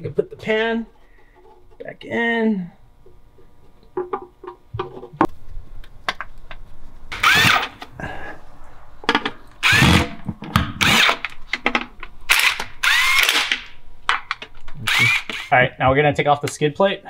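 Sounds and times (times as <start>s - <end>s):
power tool whining in bursts: 7.1s - 7.8s, 12.3s - 13.5s, 14.9s - 15.5s.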